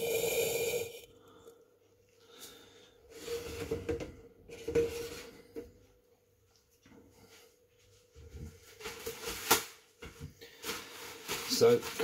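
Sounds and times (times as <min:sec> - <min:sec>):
faint steady hum: 0:00.0 - 0:09.0.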